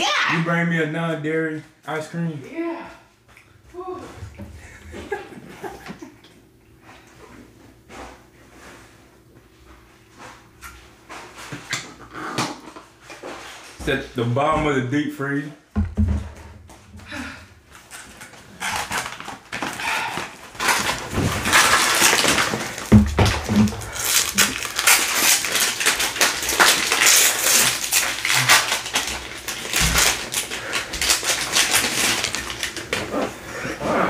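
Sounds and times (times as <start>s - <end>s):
dull bumps: 15.8s - 17.0s
plastic wrappers crinkling: 17.7s - 33.4s.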